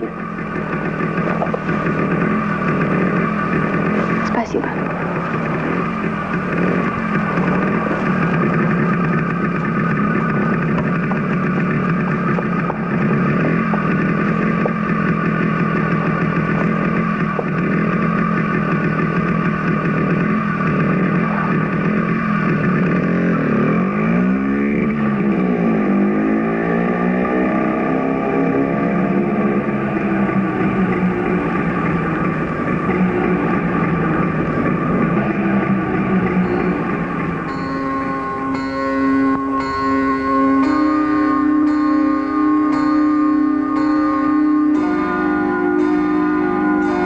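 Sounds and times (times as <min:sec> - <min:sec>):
motorcycle engine running: 0:00.0 - 0:47.0.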